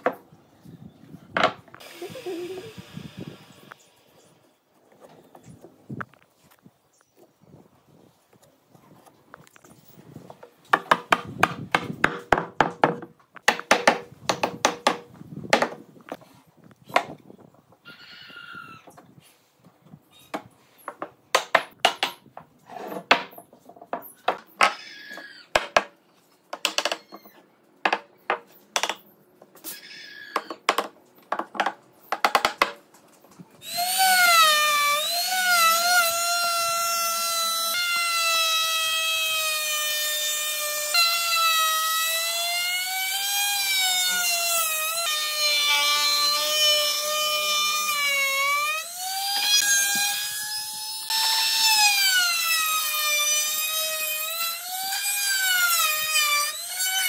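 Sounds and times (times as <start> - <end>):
wooden knocks of hammering: 10.7 - 15.8, 20.4 - 22.5, 25.5 - 27.0, 30.4 - 32.8
trim router whining: 33.6 - 57.0.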